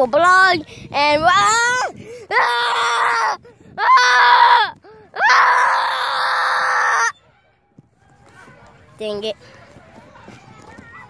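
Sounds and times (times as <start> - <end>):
child crying out: 1.3 - 7.1.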